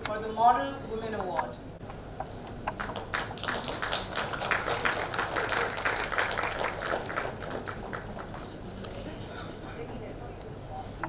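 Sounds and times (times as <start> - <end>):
audience applauding: 2.8 - 8.5.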